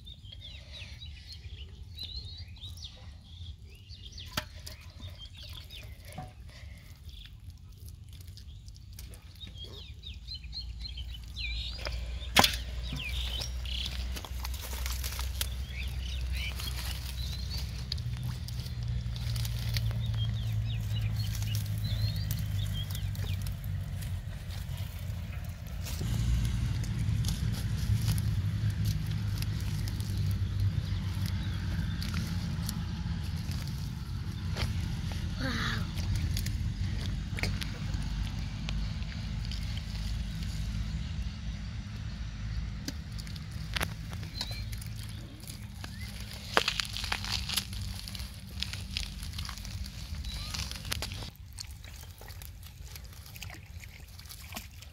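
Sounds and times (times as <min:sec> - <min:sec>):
steady low rumble: 0:00.0 - 0:54.6
small birds chirping: 0:00.0 - 0:54.9
plants torn from wet mud: 0:04.0 - 0:54.9
steady low hum: 0:11.2 - 0:51.3.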